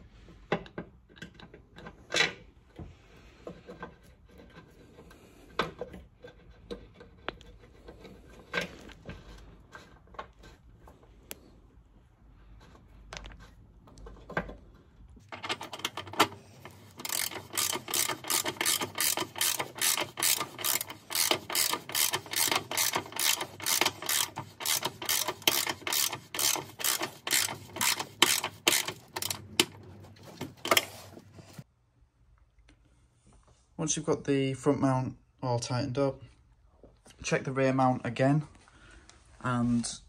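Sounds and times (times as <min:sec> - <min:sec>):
ratchet wrench clicking: 0:16.7 - 0:29.8.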